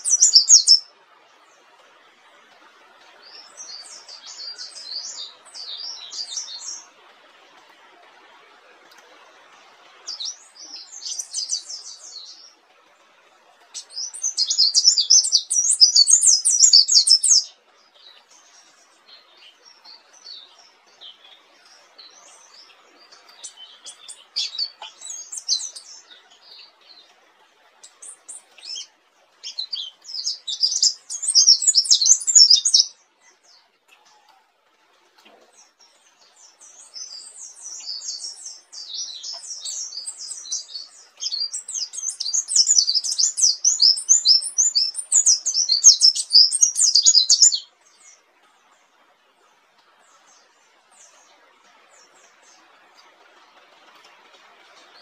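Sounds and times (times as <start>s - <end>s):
bird chirps: 0.0s - 0.9s, 3.2s - 6.9s, 10.1s - 12.6s, 13.7s - 27.1s, 27.8s - 34.4s, 35.3s - 48.2s
bird twittering song: 0.0s - 1.8s, 3.0s - 7.0s, 10.0s - 12.6s, 13.6s - 27.2s, 27.8s - 34.3s, 35.2s - 48.8s.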